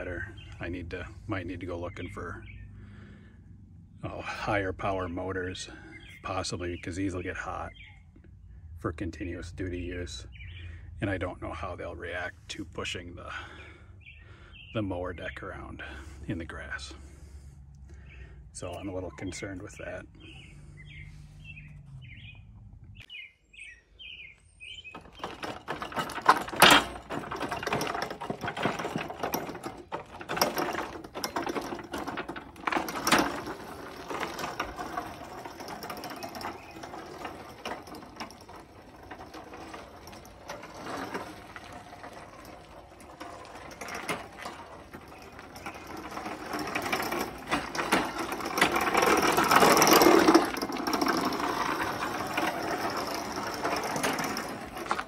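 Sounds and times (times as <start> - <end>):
birds chirping: 0.0 - 55.0
chain clatter: 24.9 - 55.0
sharp mechanical knocks: 24.9 - 55.0.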